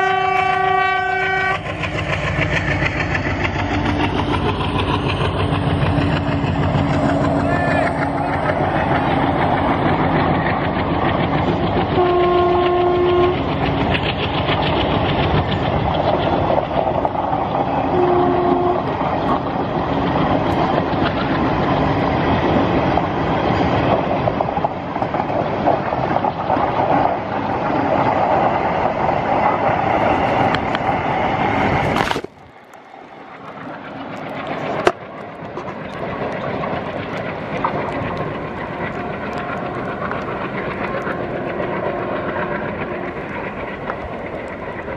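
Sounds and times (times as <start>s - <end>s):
train horn: 0.0s - 1.7s, 12.0s - 13.5s, 17.8s - 19.0s
distant train rumble: 0.0s - 44.9s
train wheels clattering on rails: 0.0s - 44.9s.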